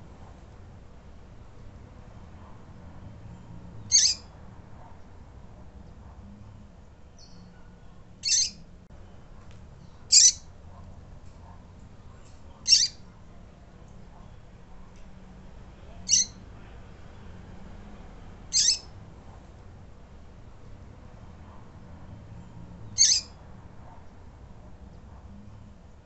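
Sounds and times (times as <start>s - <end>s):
bird high peeping call: 3.9s - 4.2s, 8.2s - 8.6s, 10.1s - 10.4s, 12.7s - 13.0s, 16.1s - 16.4s, 18.5s - 18.9s, 23.0s - 23.3s.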